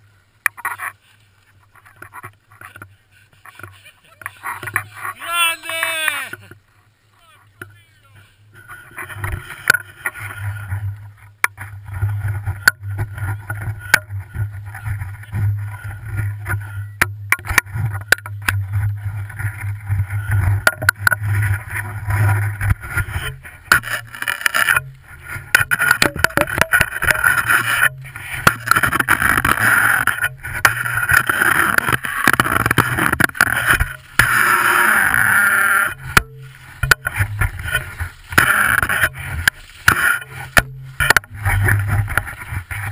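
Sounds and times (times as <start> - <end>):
skis scraping over packed snow: 0.0 - 42.9
low wind rumble on microphone: 8.9 - 42.9.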